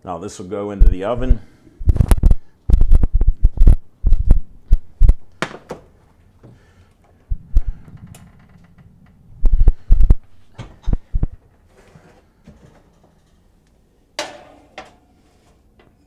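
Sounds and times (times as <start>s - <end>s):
brief low rumble: 7.3s - 11.4s.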